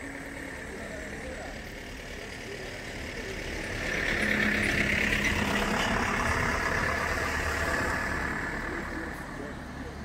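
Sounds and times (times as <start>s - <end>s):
vehicle driving past: 3.0s - 9.9s.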